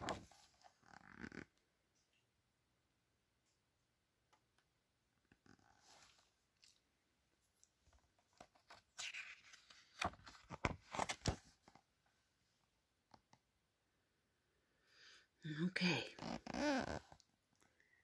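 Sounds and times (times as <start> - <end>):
book pages turning: 0.0 - 0.8, 8.2 - 11.8.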